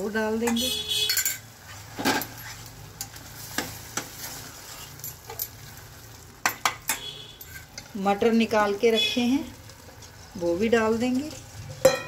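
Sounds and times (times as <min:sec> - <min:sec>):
faint sizzle: 0:00.0 - 0:12.0
metal ladle knocking and scraping pan: 0:00.4 - 0:02.4.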